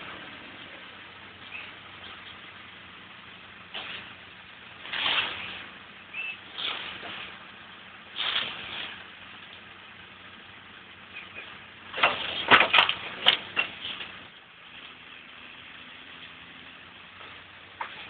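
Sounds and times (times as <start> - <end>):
distant tractor engine hum: 0.0 - 18.0.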